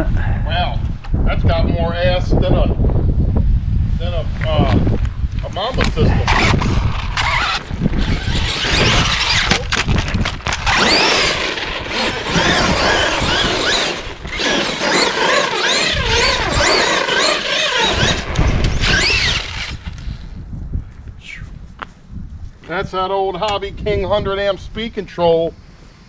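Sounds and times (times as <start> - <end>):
drivetrain and tyre noise: 5.0 - 20.3
electric motor whining: 6.2 - 20.4.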